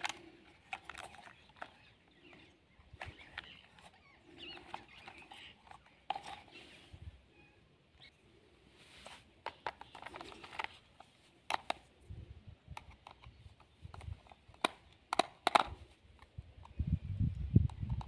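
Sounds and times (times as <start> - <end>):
hard plastic clicking: 0.0 - 6.5, 9.4 - 10.8, 11.4 - 11.9, 12.7 - 16.8.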